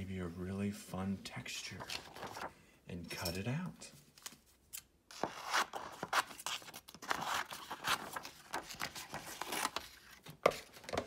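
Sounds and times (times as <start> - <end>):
stiff paper rustling: 1.7 - 2.6, 5.2 - 11.0.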